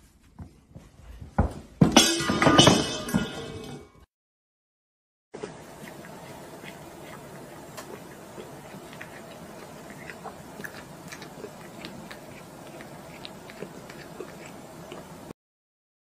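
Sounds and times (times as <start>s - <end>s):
cat lapping liquid: 5.4s - 15.3s.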